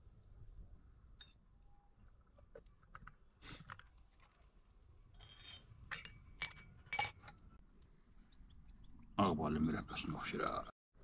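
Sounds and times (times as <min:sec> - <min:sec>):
glassware clinking: 0:05.2 - 0:07.4.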